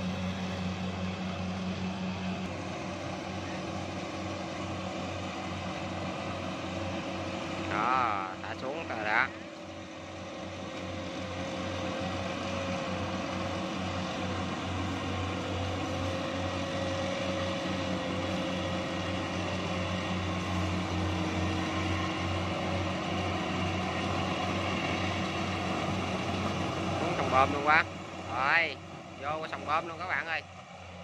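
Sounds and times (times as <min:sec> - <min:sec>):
combine harvester diesel engine: 0:00.0 - 0:31.0.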